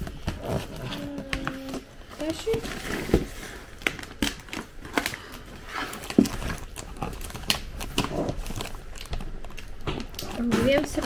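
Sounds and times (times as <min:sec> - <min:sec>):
cardboard box being handled: 0:00.0 - 0:08.8
packaging crinkling: 0:00.0 - 0:11.0.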